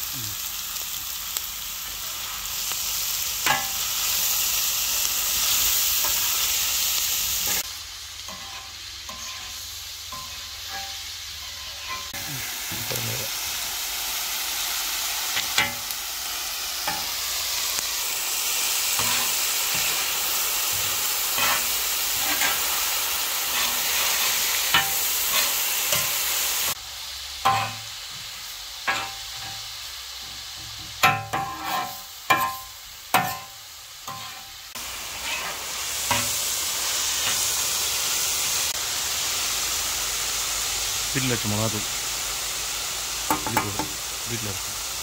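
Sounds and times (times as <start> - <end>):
vegetables sizzling on a griddle: 0.0 - 45.0
metal spatula scraping and clacking: 8.3 - 12.2, 19.0 - 20.0, 20.8 - 22.6, 23.5 - 26.1, 27.4 - 27.8, 28.9 - 29.6, 30.2 - 33.5, 34.1 - 34.5, 35.2 - 36.4.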